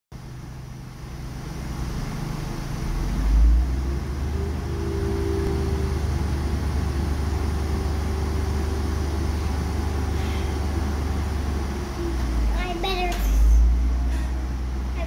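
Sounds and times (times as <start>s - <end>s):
diesel engines droning: 0.2s - 15.0s
faint even whine: 1.1s - 12.5s.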